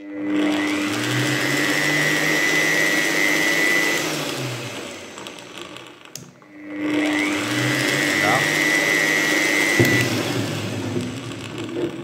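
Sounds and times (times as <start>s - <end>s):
mixer motor whining: 0.0s - 12.0s
click: 6.1s - 6.5s.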